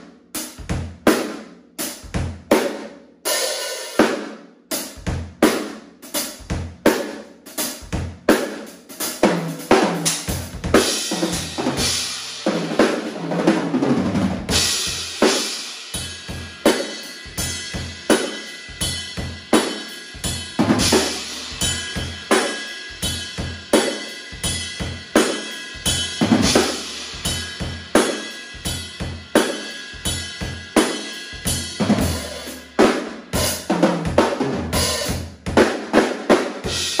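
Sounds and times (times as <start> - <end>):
bass drum: 25.9 - 28.0, 31.4 - 35.7.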